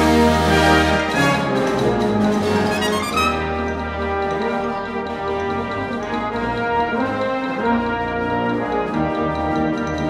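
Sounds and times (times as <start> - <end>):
brass band playing chords: 0.0 - 10.0.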